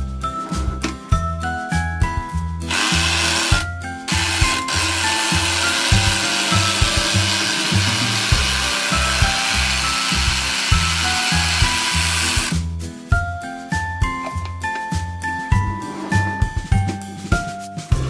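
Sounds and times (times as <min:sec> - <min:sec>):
toy blender whirring: 0:02.7 - 0:12.6.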